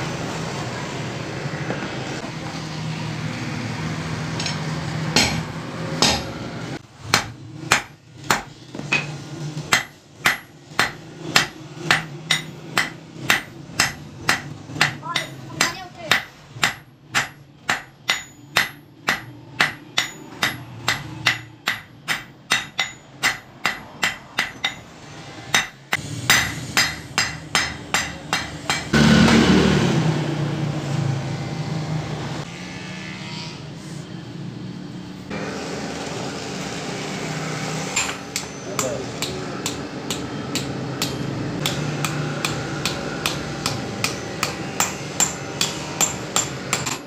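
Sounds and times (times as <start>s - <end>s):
hammer striking iron on anvil: 4.4s - 6.4s, 7.0s - 24.9s, 25.5s - 29.1s, 38.0s - 47.0s.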